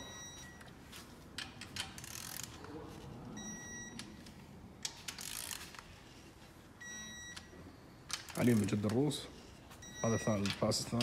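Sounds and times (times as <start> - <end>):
torque wrench ratcheting and clicking: 1.4 - 2.6, 4.8 - 5.8.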